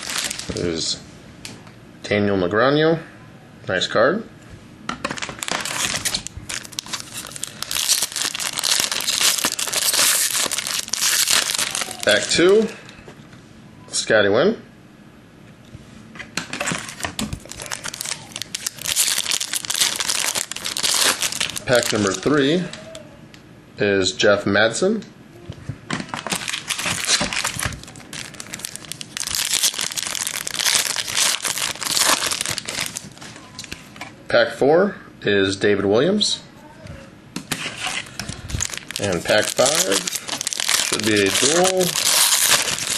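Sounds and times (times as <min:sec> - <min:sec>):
foil wrapper tearing and crinkling: 0:00.0 - 0:00.7, 0:05.2 - 0:12.5, 0:16.6 - 0:22.4, 0:26.1 - 0:33.2, 0:37.7 - 0:42.9.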